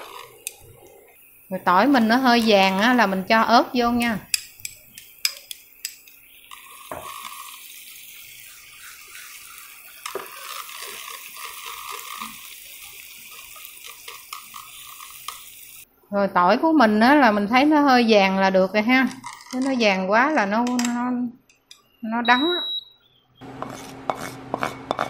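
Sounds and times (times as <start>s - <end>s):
oil sizzling: 0.0s - 15.9s, 23.4s - 25.0s
chopsticks clicking on plate: 4.3s - 6.2s.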